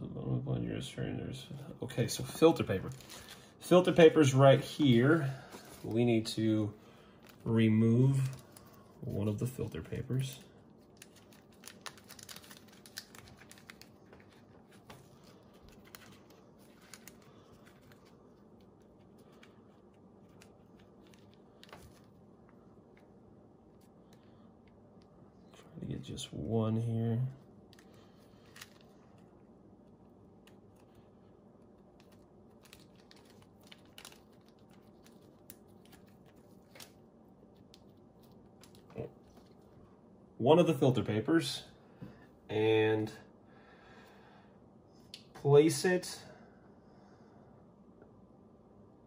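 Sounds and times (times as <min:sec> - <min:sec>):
plastic bag crinkling: 0:02.7 - 0:06.1, 0:07.0 - 0:22.3, 0:27.7 - 0:29.3, 0:31.9 - 0:39.7.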